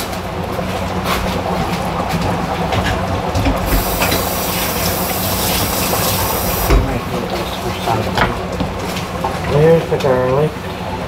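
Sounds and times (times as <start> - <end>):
chicken sizzling in a pot: 3.6 - 6.8
loud steady hiss: 3.6 - 6.9.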